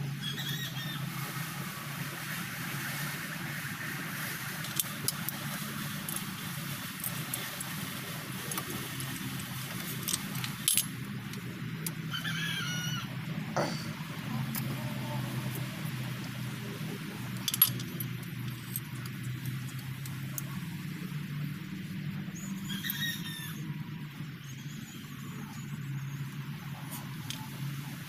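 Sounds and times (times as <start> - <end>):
steady low hum: 0.0 - 22.7.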